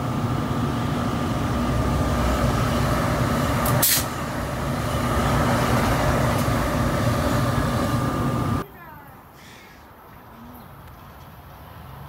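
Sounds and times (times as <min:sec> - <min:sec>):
electric locomotive rumble and whine: 0:00.0 - 0:08.6
air hiss: 0:03.6 - 0:04.2.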